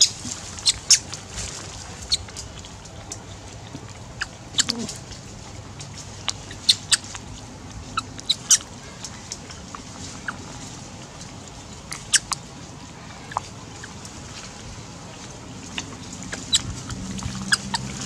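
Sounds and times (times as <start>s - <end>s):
animal squeaks and chirps: 0.0s - 1.1s, 4.6s - 4.9s, 6.5s - 7.1s, 8.0s - 8.7s, 16.3s - 17.9s
outdoor background: 0.0s - 18.0s.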